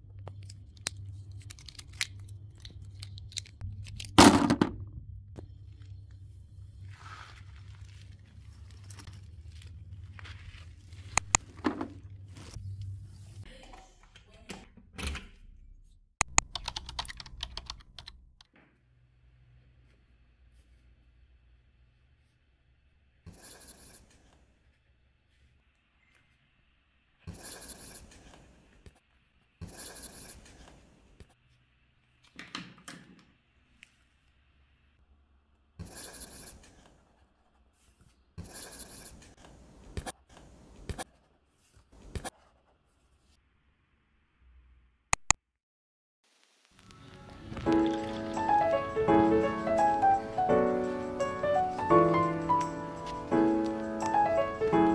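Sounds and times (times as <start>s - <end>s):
curtain fabric rustling: 6.7s - 11.2s
sharp click: 16.2s - 16.9s, 45.2s - 45.4s
highlighter dragged across paper: 23.3s - 24.3s.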